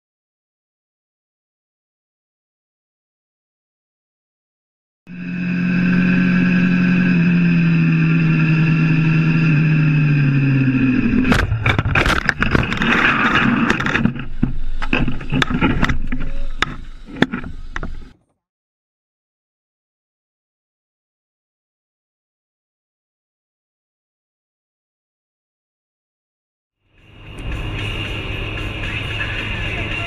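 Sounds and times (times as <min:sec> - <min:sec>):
vehicle engine running: 0:05.1 - 0:18.2, 0:26.9 - 0:30.0
vehicle crash impacts and scraping: 0:11.2 - 0:18.1.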